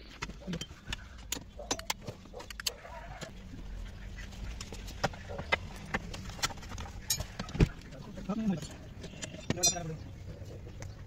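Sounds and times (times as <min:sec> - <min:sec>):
hand tools clicking and clinking: 0:00.0 - 0:02.8, 0:04.8 - 0:07.7, 0:09.2 - 0:10.0.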